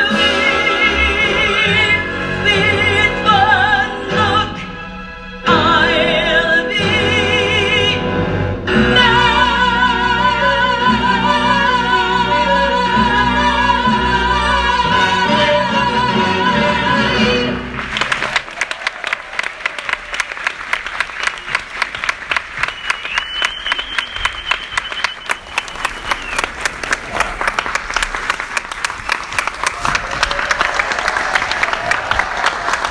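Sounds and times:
audience applauding: 17.7s - 32.9s
long whistle: 22.6s - 26.6s.

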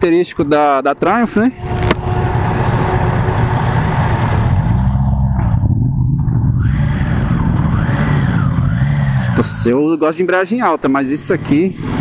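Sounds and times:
motorcycle engine revving: 1.6s - 10.0s, 11.1s - 12.0s.

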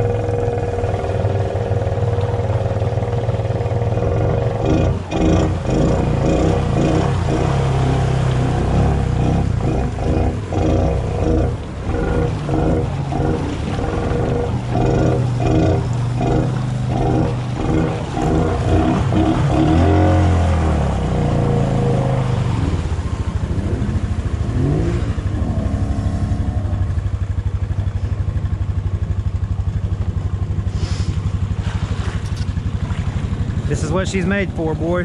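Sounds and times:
atv engine revving: 0.0s - 35.0s.

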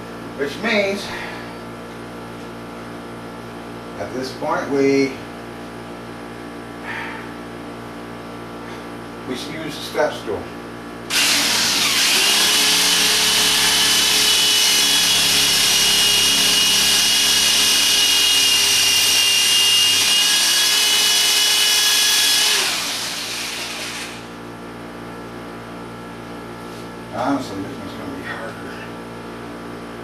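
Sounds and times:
electric drill boring into concrete: 11.1s - 24.3s.

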